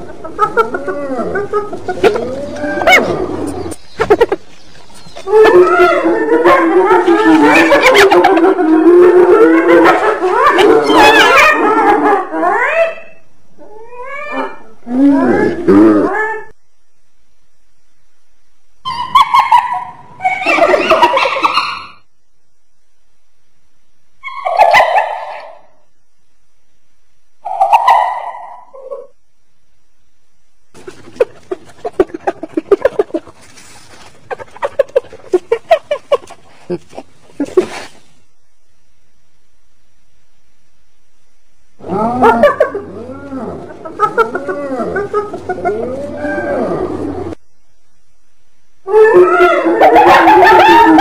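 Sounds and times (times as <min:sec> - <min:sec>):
hyena calling: 0:00.0 - 0:16.6, 0:30.8 - 0:37.8, 0:41.8 - 0:47.4, 0:48.8 - 0:51.0.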